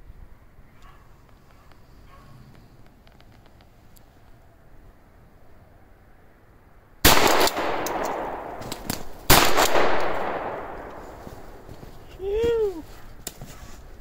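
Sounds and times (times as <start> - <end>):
echo through woods: 5.7 - 13.6
shotgun shots: 7.0 - 11.7.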